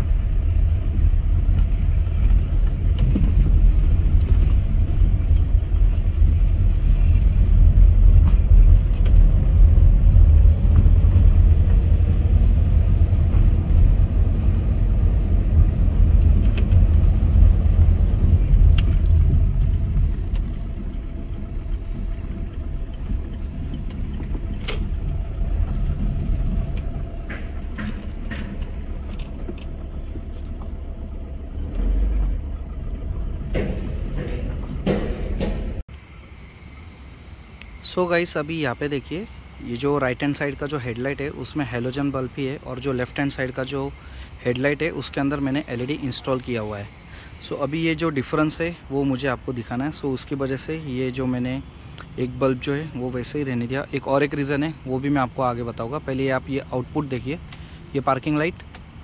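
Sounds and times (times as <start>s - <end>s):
car cabin rumble on rough road: 0.0s - 36.4s, 37.8s - 59.0s
small thump: 33.5s - 35.8s.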